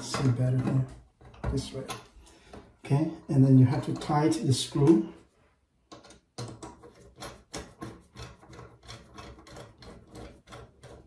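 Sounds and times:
screwdriver scraping and rasping: 5.9s - 11.0s.

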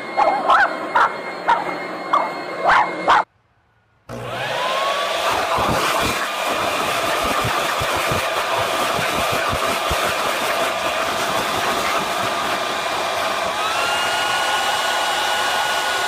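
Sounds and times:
dog barking: 0.2s - 3.3s
leaf blower whine: 4.1s - 16.0s.

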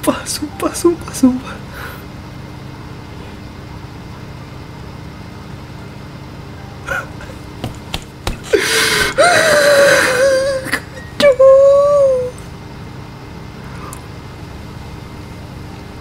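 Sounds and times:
low background hum: 0.0s - 16.0s
person squealing: 8.5s - 12.4s.

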